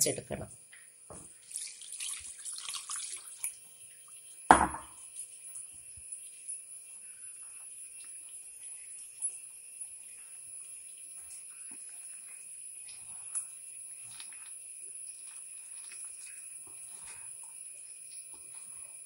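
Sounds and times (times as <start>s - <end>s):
wet flour squishing: 1.3s - 4.4s, 5.0s - 19.0s
water splashing into bowl: 1.4s - 3.6s
loud knock: 4.5s - 4.9s.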